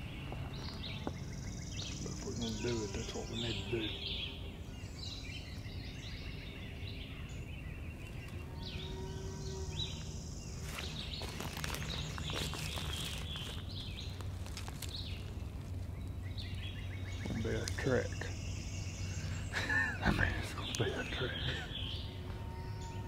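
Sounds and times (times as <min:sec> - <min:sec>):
songbirds chirping: 0:00.0 - 0:23.0
rustling and clicking: 0:10.7 - 0:16.6.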